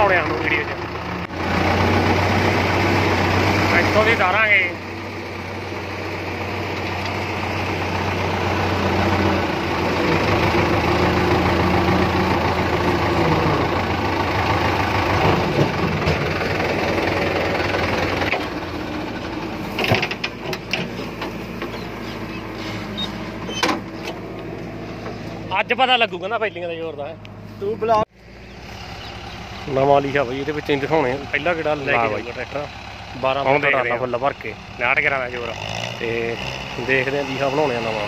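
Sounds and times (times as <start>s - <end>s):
diesel tractor engine running: 0.0s - 38.0s
sharp clicks and knocks: 19.7s - 21.9s.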